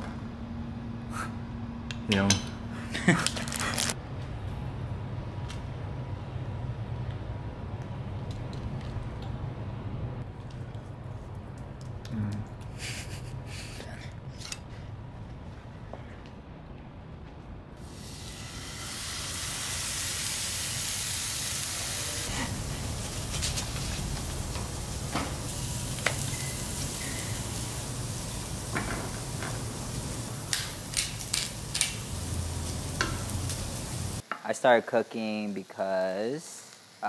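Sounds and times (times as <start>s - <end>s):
food sizzling in a pan: 17.8s - 37.0s.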